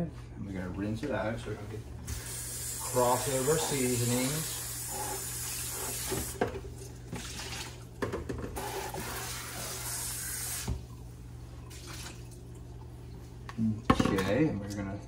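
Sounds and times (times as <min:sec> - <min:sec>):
tap water splashing in sink: 0:06.0 - 0:09.3.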